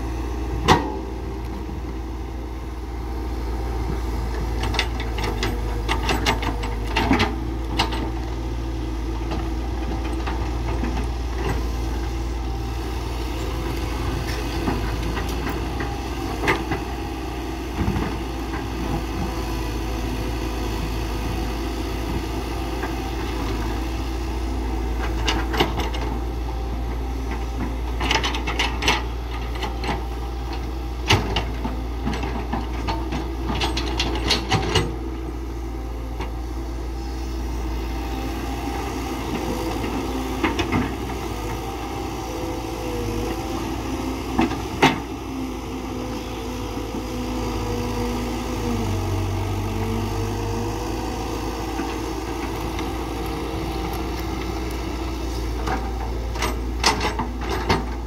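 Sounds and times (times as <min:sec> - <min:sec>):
excavator diesel engine: 0:00.0 - 0:58.0
knocks and clatters of digging: 0:03.9 - 0:08.4, 0:25.0 - 0:35.1, 0:51.4 - 0:58.0.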